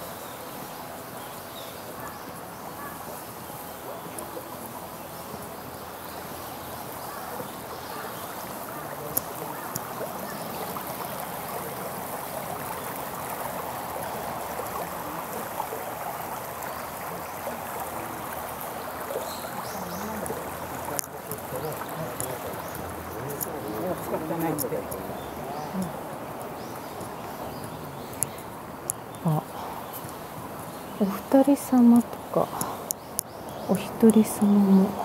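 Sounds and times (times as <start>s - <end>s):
river water rushing: 0.0s - 35.0s.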